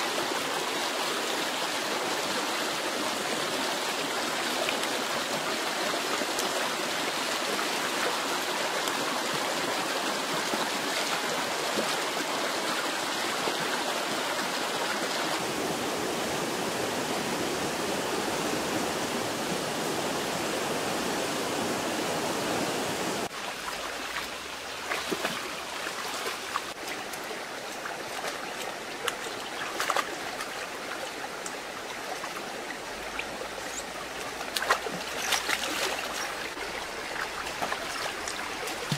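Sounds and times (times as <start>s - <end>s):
river rushing over rocks: 0.0s - 38.9s
small splashes: 23.6s - 30.6s, 33.1s - 38.9s.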